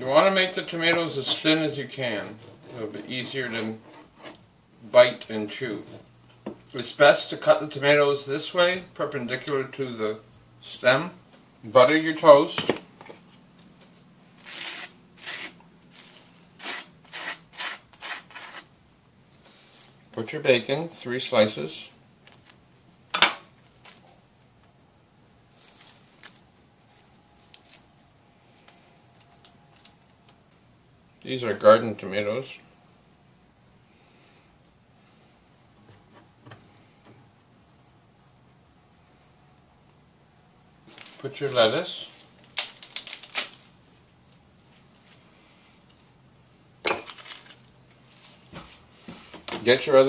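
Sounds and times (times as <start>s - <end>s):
sharp clink: 46.8s - 47.2s.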